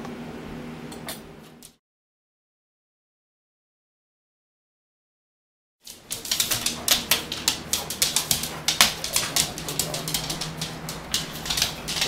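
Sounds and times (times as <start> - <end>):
dog claws clicking on wood floor: 5.9 - 12.0
faint low hum: 5.9 - 12.0.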